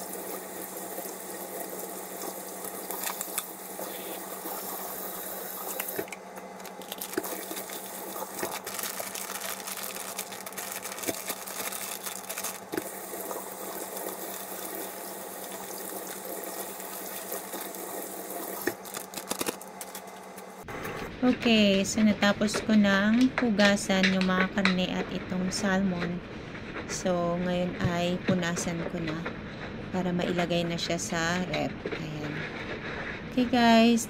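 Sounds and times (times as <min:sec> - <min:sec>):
plastic packages being rinsed: 0:00.0 - 0:20.5
faucet running into steel sink: 0:12.8 - 0:18.7.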